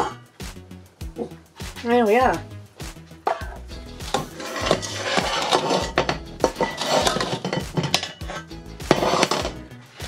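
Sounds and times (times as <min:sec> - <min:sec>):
saucepan knocking and scraping: 0:03.3 - 0:09.7.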